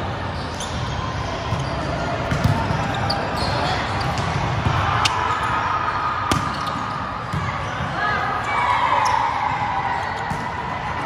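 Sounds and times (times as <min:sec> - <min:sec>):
players' voices: 0:00.0 - 0:11.0.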